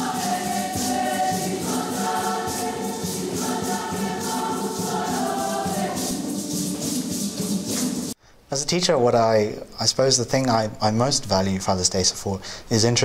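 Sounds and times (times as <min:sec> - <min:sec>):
choir singing a hymn: 0:00.0 - 0:08.1
shaking rattle beat: 0:00.0 - 0:08.2.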